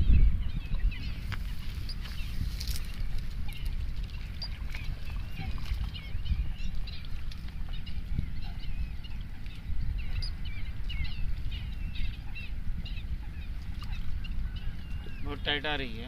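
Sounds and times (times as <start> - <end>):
small birds chirping: 0.0 - 16.0
wind rumble on microphone: 0.0 - 16.0.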